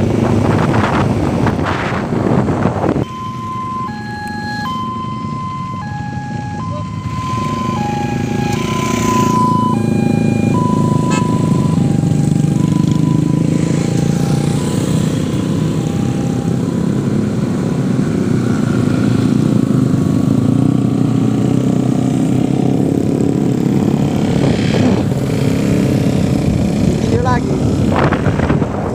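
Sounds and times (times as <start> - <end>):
motorcycle engines running: 0.0 - 28.9
road noise: 0.0 - 28.9
two-tone electronic horn: 3.0 - 5.9, 6.6 - 12.0.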